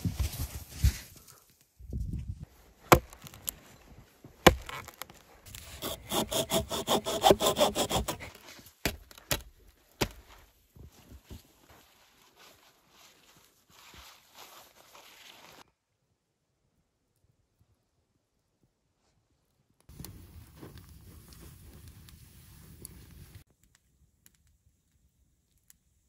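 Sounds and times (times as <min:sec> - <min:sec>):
hand saw cutting log: 0:04.4 - 0:04.9, 0:05.5 - 0:09.0.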